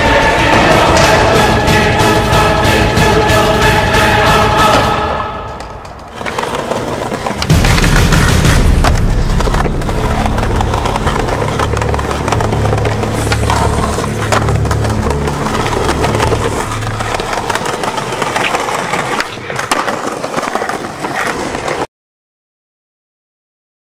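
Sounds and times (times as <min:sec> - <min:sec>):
skateboard wheels rolling on concrete: 0:05.4 - 0:21.9
skateboard clacks: 0:05.6 - 0:21.9.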